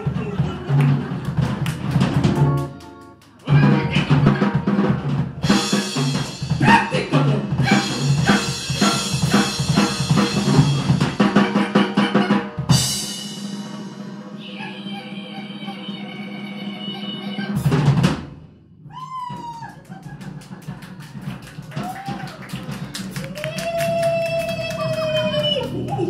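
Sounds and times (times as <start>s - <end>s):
drum kit playing: 0.0s - 14.9s, 17.5s - 26.0s
electric guitars playing: 2.2s - 5.0s.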